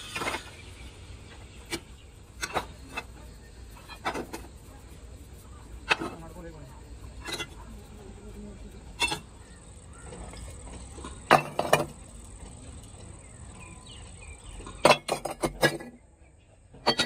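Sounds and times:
scrap iron pieces clanking: 2.4s - 3.1s, 9.0s - 9.3s, 10.2s - 12.0s, 14.6s - 16.0s.

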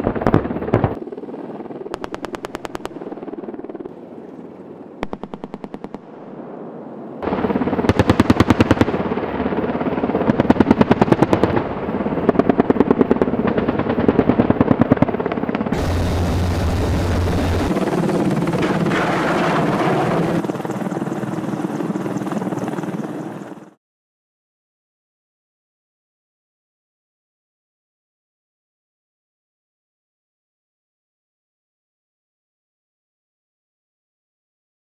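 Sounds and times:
helicopter rotor noise: 0.1s - 6.0s, 7.2s - 23.8s
missile rushing: 15.8s - 17.8s.

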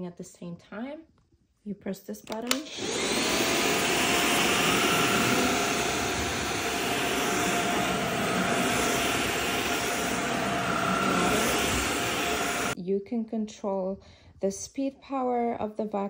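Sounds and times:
vacuum motor whining: 2.5s - 12.8s.

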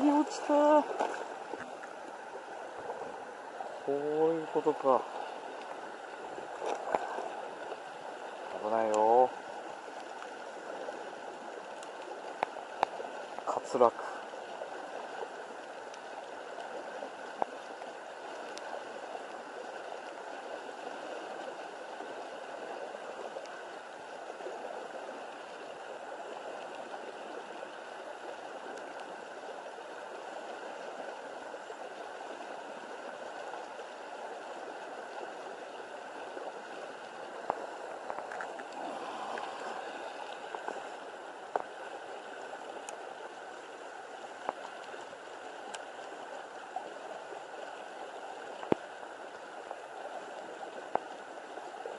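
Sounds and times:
flowing water: 0.0s - 51.9s
faint clicks: 11.6s - 13.5s, 18.3s - 18.8s, 28.7s - 29.1s, 45.6s - 46.0s.

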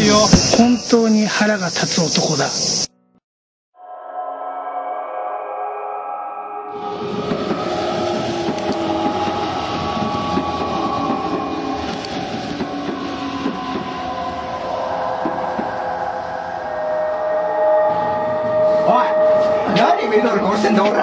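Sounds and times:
steady held tones: 0.0s - 1.6s, 6.7s - 21.0s
train rushing clatter: 6.8s - 16.9s, 18.9s - 21.0s.

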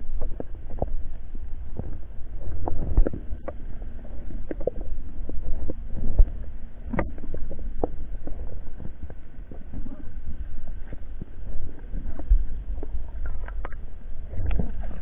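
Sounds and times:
underwater rumble of moving water: 0.0s - 15.0s.

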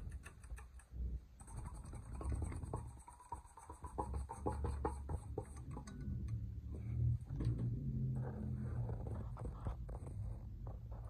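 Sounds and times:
low rumble: 5.9s - 11.0s.

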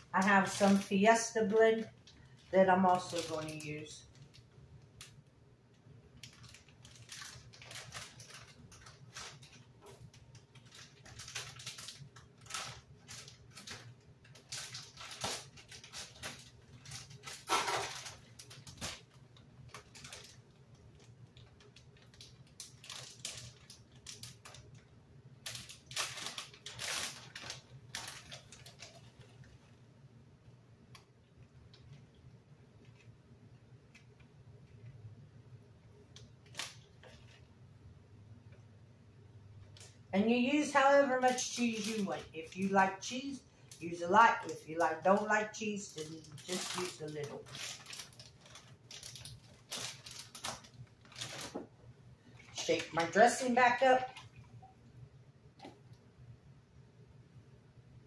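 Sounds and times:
plastic bag crinkling: 0.0s - 29.8s, 36.1s - 37.5s, 39.6s - 54.6s.

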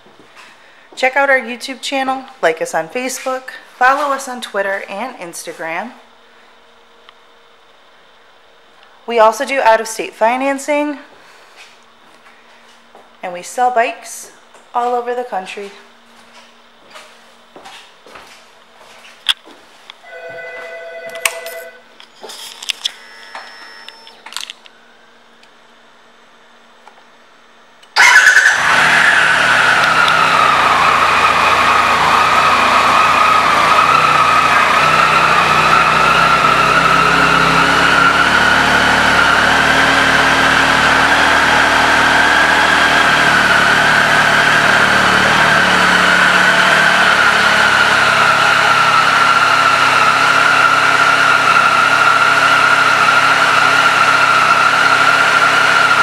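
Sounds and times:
engine whine: 19.2s - 25.6s, 27.8s - 56.0s
short beeps and clicks: 20.1s - 21.8s, 22.9s - 24.2s
motorcycle engine starting and idling: 27.9s - 56.0s.

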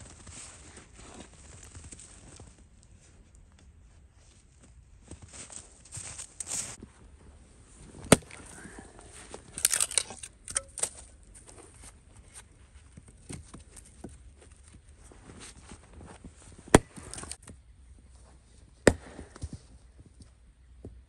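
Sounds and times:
axe striking wood: 8.0s - 8.4s, 16.7s - 17.4s, 18.8s - 19.4s.

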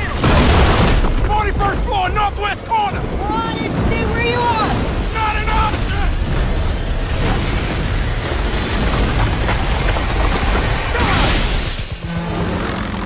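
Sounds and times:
crash of breaking debris: 0.0s - 1.6s, 4.7s - 12.0s
heavy rumbling explosions: 0.0s - 12.3s.

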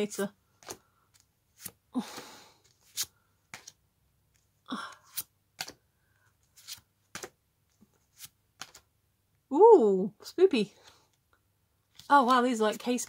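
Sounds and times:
cards clicking and flicking: 0.6s - 3.8s, 5.0s - 5.8s, 6.6s - 7.4s, 8.2s - 8.8s.

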